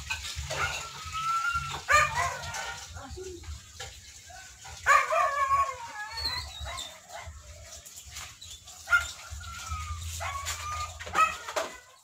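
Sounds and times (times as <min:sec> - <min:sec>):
dog whining: 0:04.9 - 0:07.3, 0:08.9 - 0:12.0.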